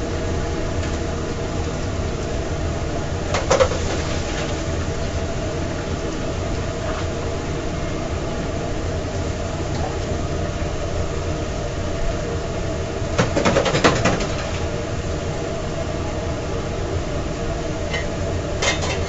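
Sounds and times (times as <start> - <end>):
kitchen equipment humming: 0.0 - 19.0.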